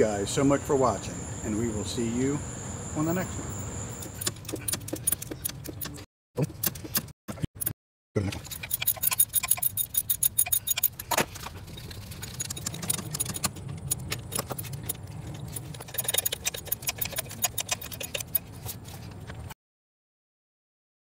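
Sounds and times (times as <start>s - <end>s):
low steady hum: 0.0s - 4.2s
socket ratchet clicking: 8.5s - 11.1s, 12.4s - 18.4s.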